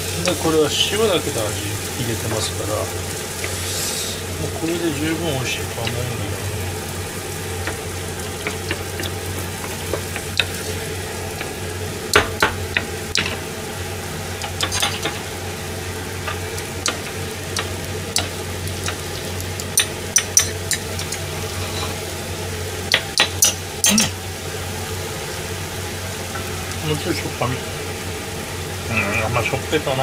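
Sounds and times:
sauce simmering: 0:00.0 - 0:29.8
constant low hum: 0:00.0 - 0:30.0
wooden spatula scraping frying pan: 0:21.3 - 0:22.2.

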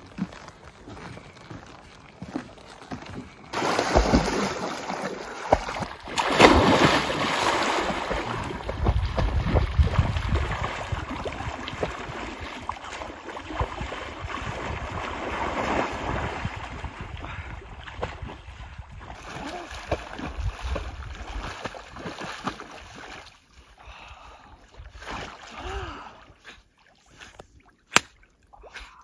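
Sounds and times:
person wading through water: 0:00.0 - 0:29.0
dog splashing in lake water: 0:03.5 - 0:23.4.

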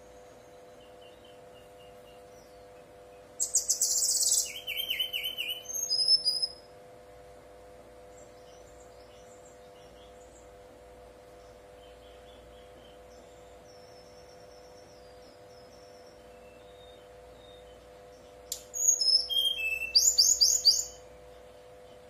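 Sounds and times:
faint bird chirps: 0:00.0 - 0:06.7, 0:11.4 - 0:22.0
bird singing buzzy trill: 0:00.0 - 0:22.0
faint steady hum: 0:00.0 - 0:22.0.

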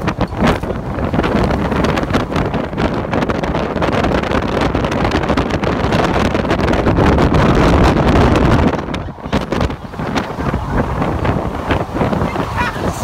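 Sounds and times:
strong wind buffeting microphone: 0:00.0 - 0:13.0.

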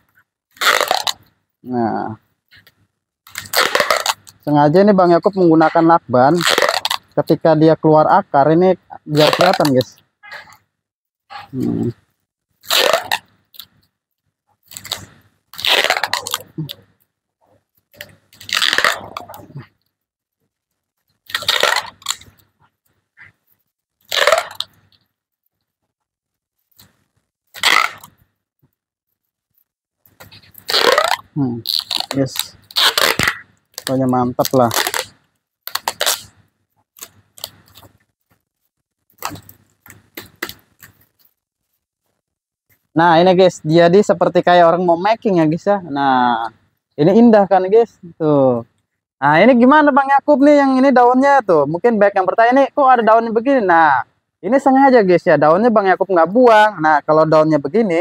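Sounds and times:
packing tape crackling: 0:00.1 - 0:01.4, 0:02.5 - 0:04.8, 0:06.3 - 0:07.4, 0:09.1 - 0:10.0, 0:11.5 - 0:13.9, 0:14.6 - 0:17.1, 0:17.7 - 0:19.9, 0:20.5 - 0:25.1, 0:25.8 - 0:43.0
handling clicks and rustles: 0:11.5 - 0:43.0.

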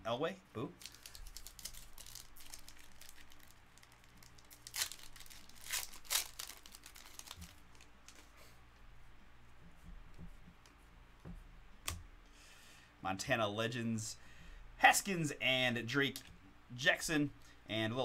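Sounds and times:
foil wrapper tearing and crinkling: 0:00.8 - 0:08.2.

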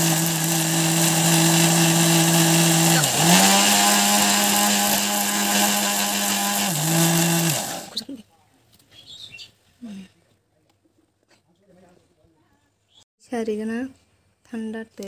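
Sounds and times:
mixer grinder motor humming: 0:00.0 - 0:08.0.

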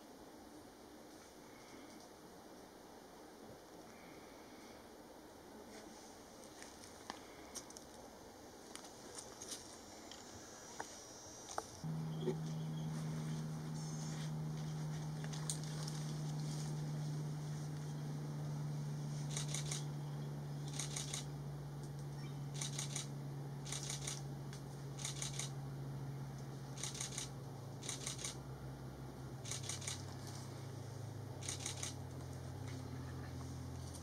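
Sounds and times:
steady low hum: 0:00.0 - 0:34.0
camera shutter clicks: 0:19.3 - 0:19.8, 0:20.7 - 0:21.3, 0:22.6 - 0:23.1, 0:23.7 - 0:24.2, 0:25.0 - 0:25.5, 0:26.8 - 0:28.4, 0:29.4 - 0:30.0, 0:31.4 - 0:32.0.

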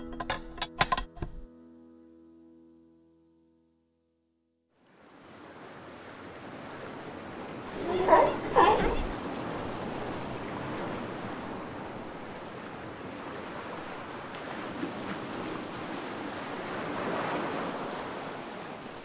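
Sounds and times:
ocean waves washing: 0:04.9 - 0:19.0.

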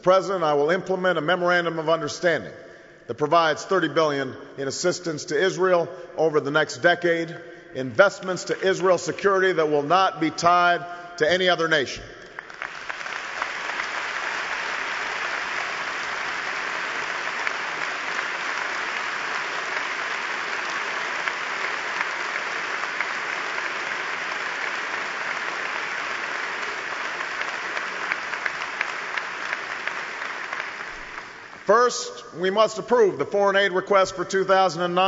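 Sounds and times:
large audience applauding: 0:12.3 - 0:31.7.

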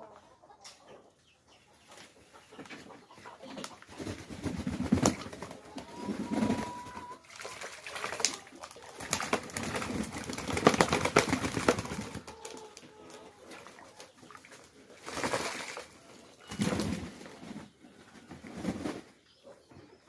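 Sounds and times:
pigeons splashing and beating wings: 0:04.0 - 0:12.6, 0:13.5 - 0:17.3
pigeons cooing: 0:04.2 - 0:07.2.

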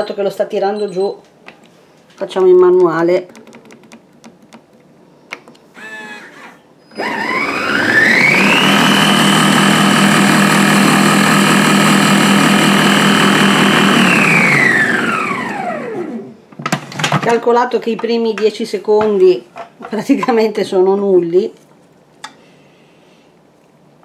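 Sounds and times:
food processor motor whining: 0:05.8 - 0:16.4.

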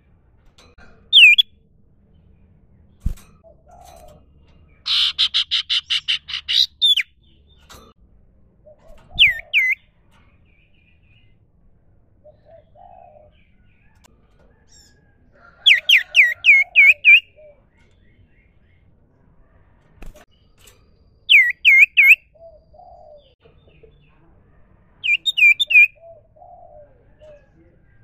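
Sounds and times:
bird whistled notes: 0:01.2 - 0:01.5, 0:21.3 - 0:22.2.

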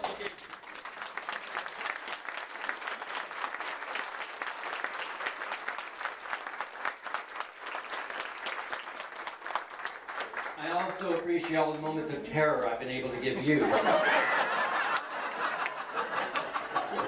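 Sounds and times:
crowd applauding: 0:00.0 - 0:12.1, 0:13.5 - 0:17.0.

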